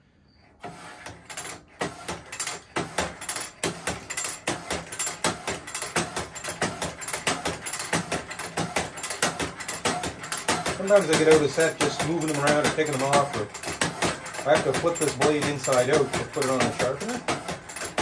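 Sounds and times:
metal clicks and clacks: 0.6 - 18.0.

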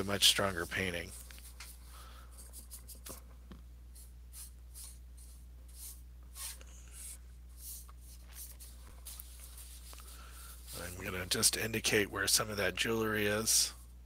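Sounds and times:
brush strokes scratching: 0.0 - 3.3, 3.9 - 11.5
steady low hum: 0.0 - 14.0.

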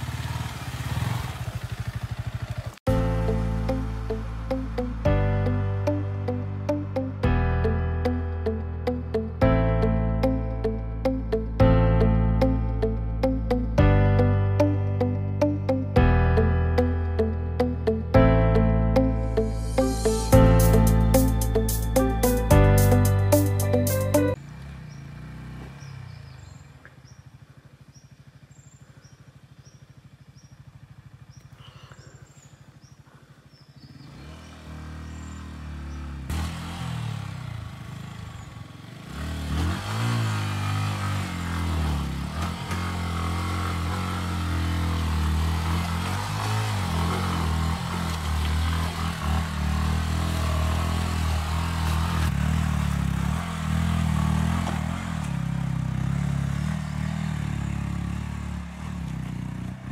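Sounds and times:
motorcycle engine revving: 0.0 - 5.2, 23.2 - 59.9.

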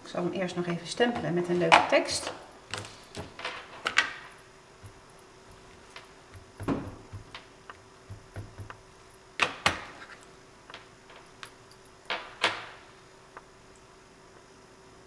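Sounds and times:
hard plastic knocks and clicks: 8.1 - 8.8.

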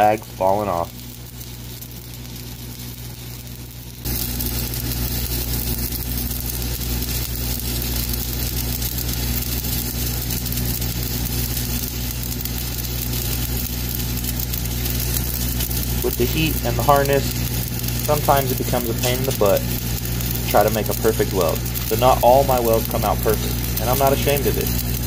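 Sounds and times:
welding arc crackling and hissing: 0.0 - 25.0.

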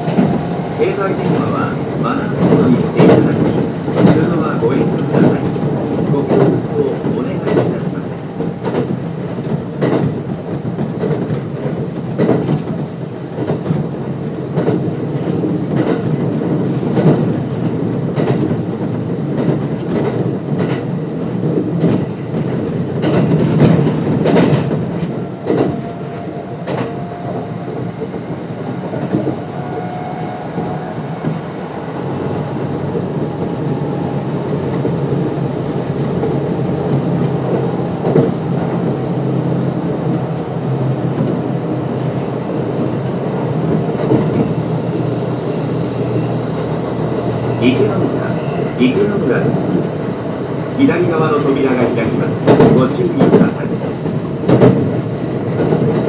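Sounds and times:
wheels clacking over rail joints: 0.0 - 29.5, 46.0 - 56.0
train rumble: 0.0 - 56.0.

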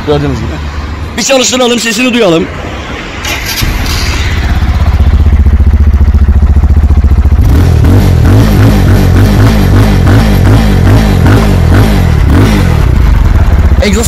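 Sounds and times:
single-cylinder engine idling: 3.3 - 7.6.

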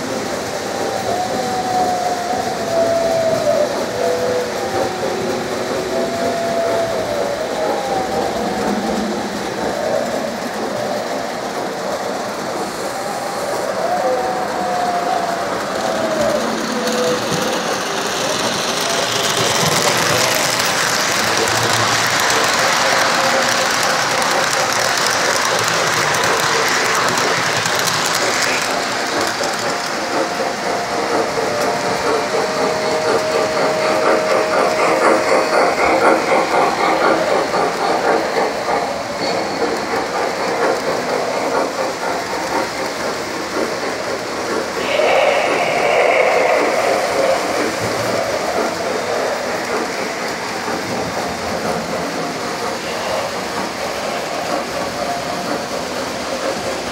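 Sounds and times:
model train motor whir: 15.4 - 44.8.

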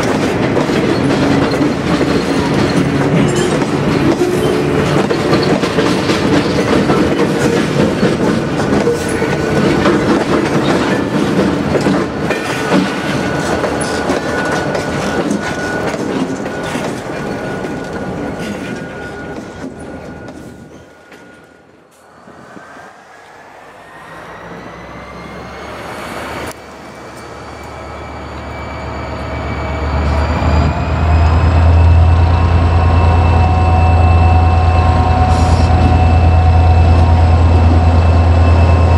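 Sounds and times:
wheels clattering over rail joints: 0.0 - 21.3
locomotive whine: 0.0 - 38.9.

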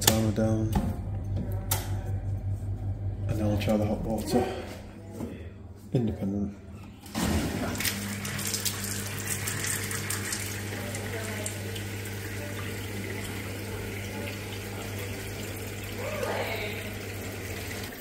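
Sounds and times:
low hum: 0.0 - 5.1
tap water running into sink: 7.2 - 18.0.

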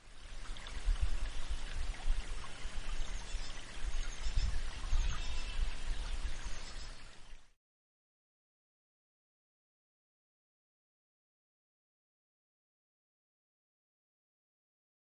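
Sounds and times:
wind rumbling on microphone: 0.0 - 7.4.

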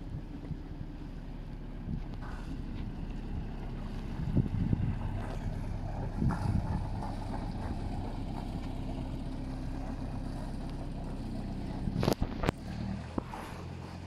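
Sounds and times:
boat diesel engine running: 0.0 - 14.0.

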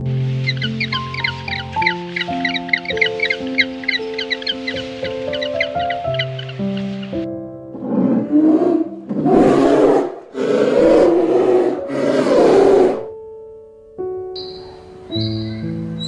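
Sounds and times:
soft piano music: 0.0 - 16.0
polar bear growling: 7.7 - 13.2.

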